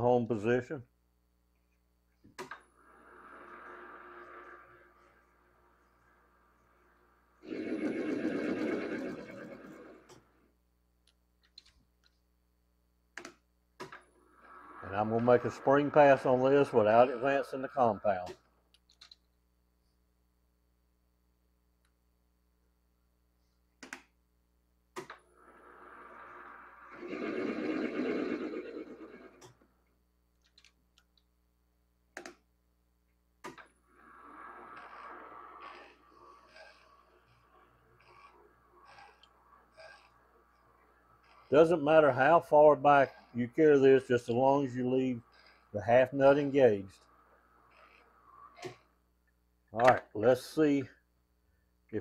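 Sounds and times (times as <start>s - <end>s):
metal lathe gears whirring: 33.8s - 49.0s.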